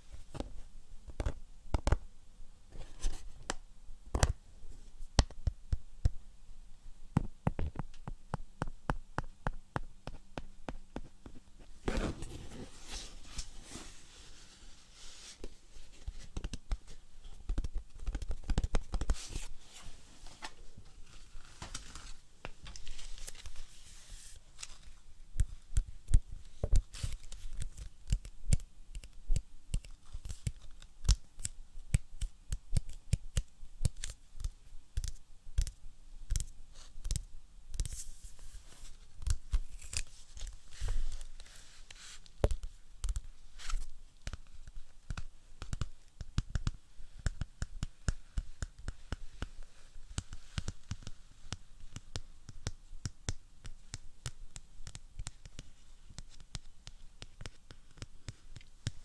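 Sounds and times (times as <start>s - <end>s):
scratchy rustling: 21.0s - 25.0s.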